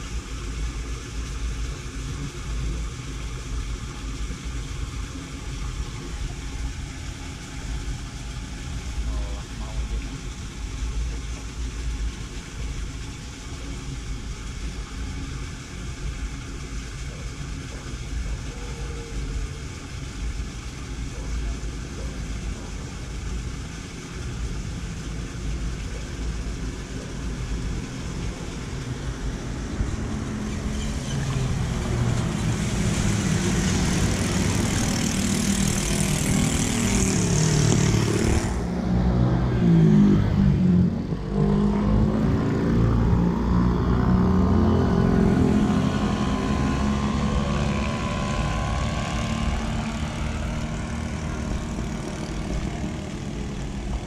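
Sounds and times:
high rushing hiss: 0:00.0 - 0:39.0
vehicle engine running: 0:00.0 - 0:54.0.

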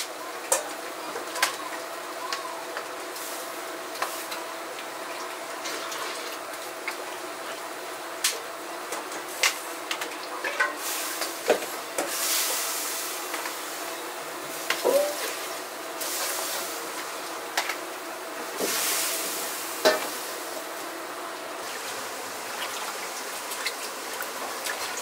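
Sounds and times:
metal utensils and pots clinking: 0:10.4 - 0:10.9, 0:14.7 - 0:15.4.

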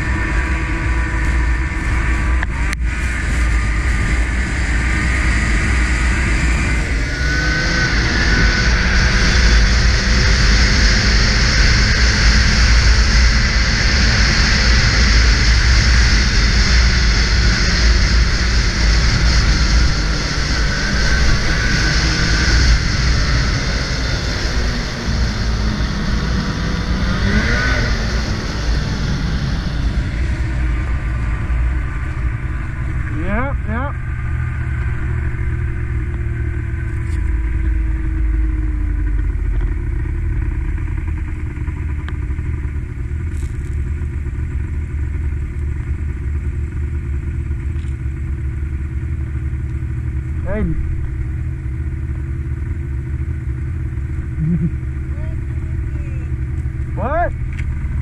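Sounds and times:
wind rumble on microphone: 0:00.0 - 0:46.2
snowmobile engine running: 0:00.0 - 0:58.0.

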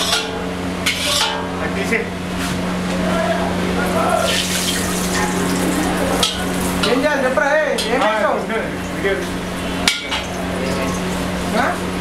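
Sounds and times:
metal ladle scraping a wok: 0:00.0 - 0:01.5
steady low hum: 0:00.0 - 0:12.0
oil sizzling: 0:04.2 - 0:12.0.

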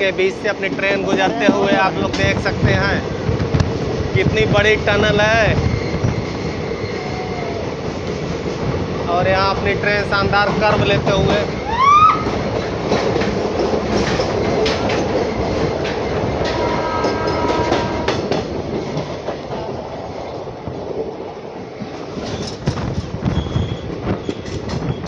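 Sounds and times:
train rumble: 0:00.0 - 0:25.0
wheels clicking over rail joints: 0:07.7 - 0:19.8, 0:21.8 - 0:25.0.

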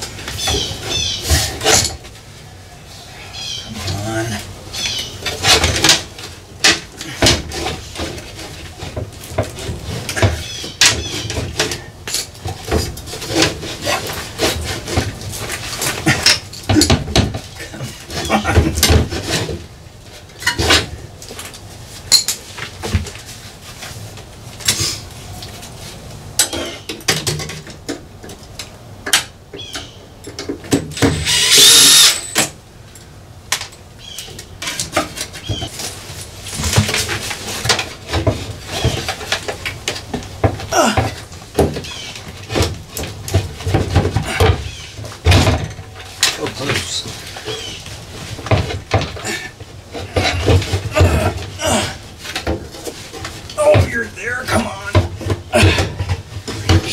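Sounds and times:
cordless drill whine: 0:31.2 - 0:32.4.

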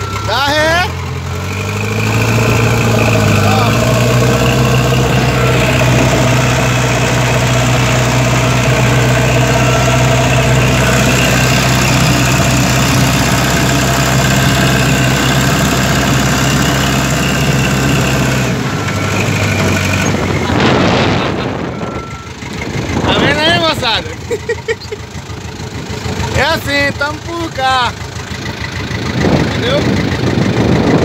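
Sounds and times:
diesel engine running: 0:00.0 - 0:31.0
loader bucket scraping dirt: 0:01.0 - 0:23.4.

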